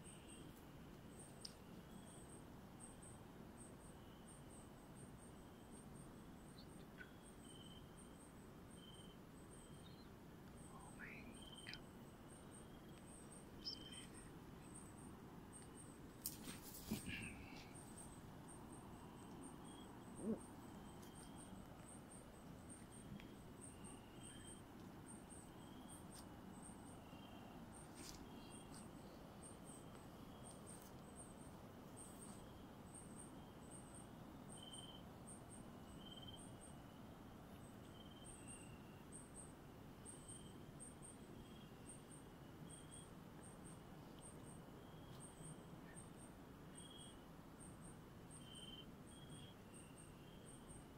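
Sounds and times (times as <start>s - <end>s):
lower animal chirps: 13.6s - 14.2s.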